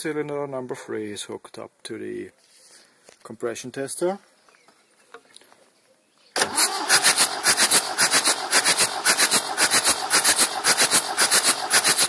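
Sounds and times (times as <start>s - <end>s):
diesel engine cranking: 6.4s - 12.0s.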